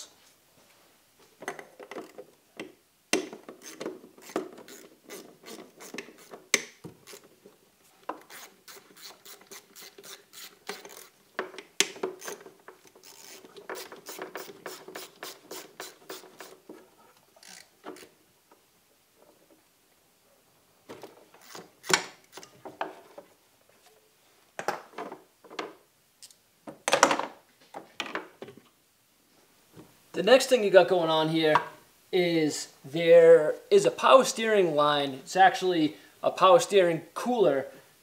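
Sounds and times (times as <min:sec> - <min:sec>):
hand ratchet clicking: 0:03.1 - 0:07.3, 0:08.2 - 0:11.2, 0:11.8 - 0:16.6, 0:17.4 - 0:18.1.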